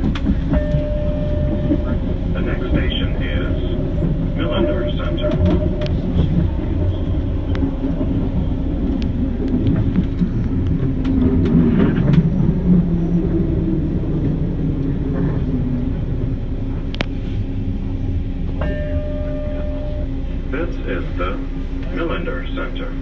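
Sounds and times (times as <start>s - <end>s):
train low rumble: 0.0s - 23.0s.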